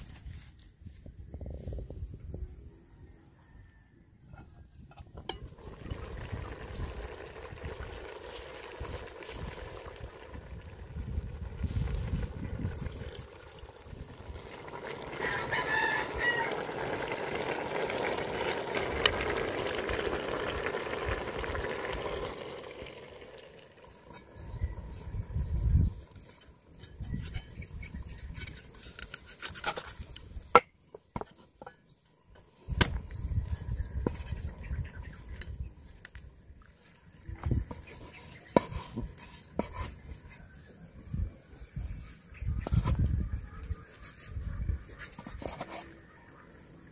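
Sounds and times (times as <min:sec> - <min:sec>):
coconut milk pouring into pot: 0:05.4 - 0:25.0
rooster crowing: 0:15.1 - 0:17.0.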